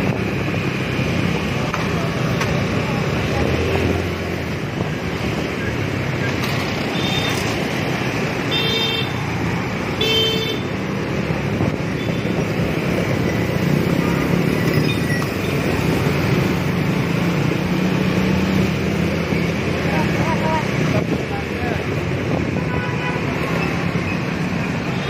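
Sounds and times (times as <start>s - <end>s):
scooter engine and road noise: 0.0s - 25.0s
scooter horn toots: 10.0s - 10.7s.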